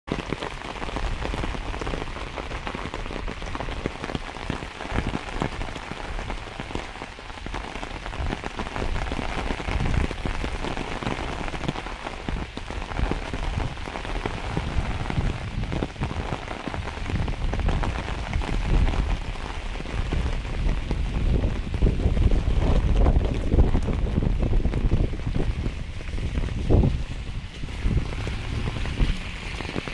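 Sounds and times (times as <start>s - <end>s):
heavy rain falling: 0.1s - 29.9s.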